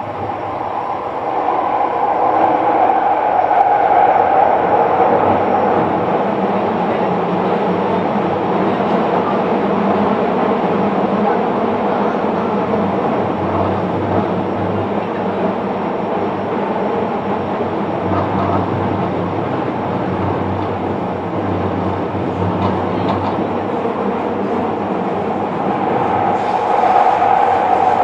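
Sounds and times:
train wheels rumbling on rail: 0.0s - 28.0s
rail-joint clicks: 22.5s - 23.5s.

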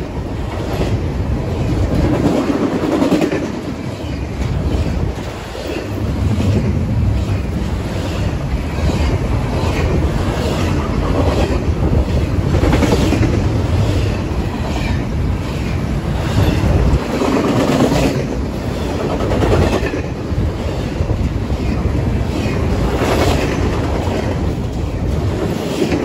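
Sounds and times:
steel wheels rumbling on rail: 0.0s - 26.0s.

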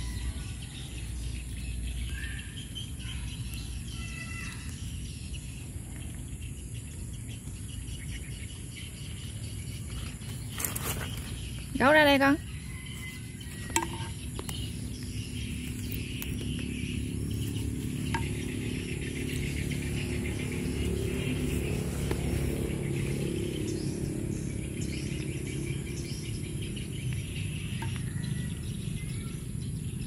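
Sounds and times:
birds chirping: 0.0s - 30.0s
insects chirring: 0.0s - 30.0s
steady low rumble: 13.3s - 30.0s.

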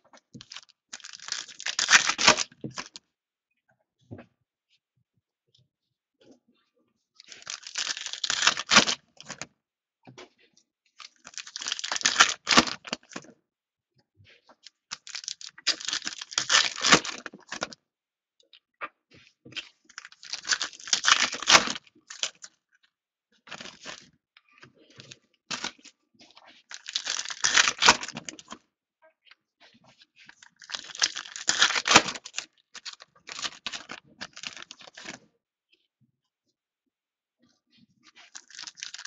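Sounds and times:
foil packs tearing and crinkling: 0.4s - 2.9s, 7.3s - 9.4s, 11.3s - 13.2s, 14.9s - 17.7s, 20.0s - 22.4s, 26.7s - 28.4s, 30.5s - 35.2s, 38.4s - 39.0s.

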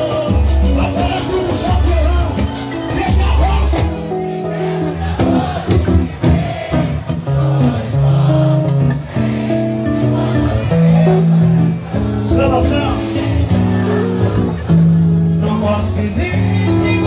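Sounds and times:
drums and cymbals: 0.0s - 4.0s, 5.1s - 7.0s
band music with singing: 0.0s - 17.0s.

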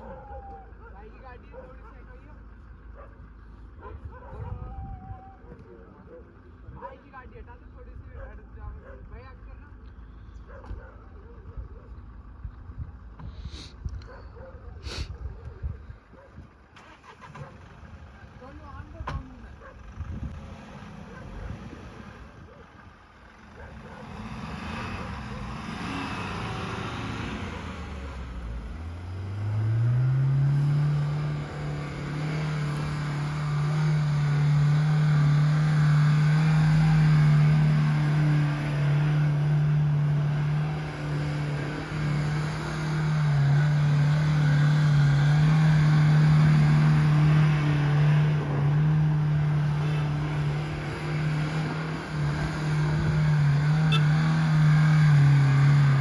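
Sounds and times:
suv engine revving: 16.6s - 56.0s.

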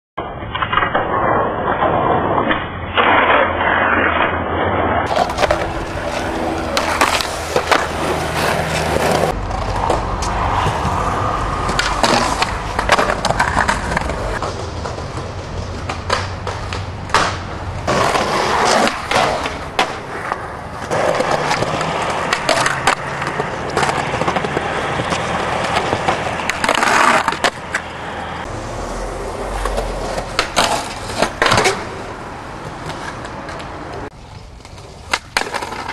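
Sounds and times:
skateboard trucks grinding: 0.2s - 35.9s
skateboard wheels rolling on concrete: 0.2s - 35.9s
skateboard clacks: 5.0s - 35.9s.

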